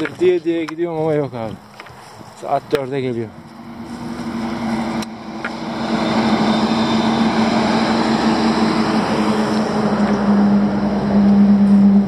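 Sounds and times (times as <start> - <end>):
lorry engine drone: 3.2 - 12.0.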